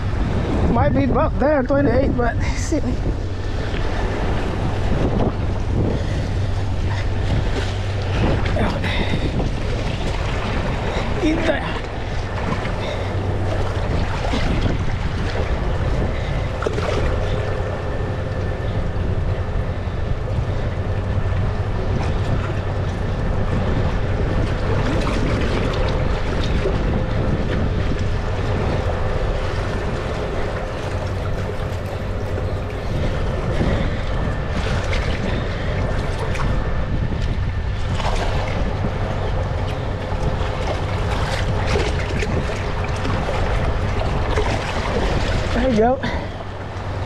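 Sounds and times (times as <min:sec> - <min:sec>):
steady low hum: 0:00.0 - 0:47.0
wind buffeting microphone: 0:00.0 - 0:47.0
water splashes: 0:01.9 - 0:47.0
water lapping among rocks: 0:02.8 - 0:17.6, 0:29.6 - 0:46.9.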